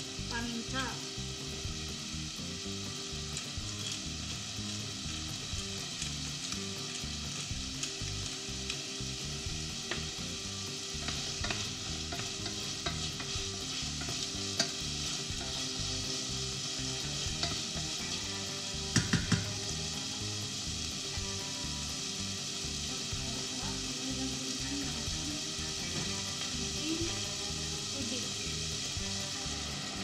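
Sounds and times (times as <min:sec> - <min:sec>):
food sizzling in a pot: 0:00.0 - 0:30.0
utensil knocking on a bowl: 0:18.9 - 0:19.5.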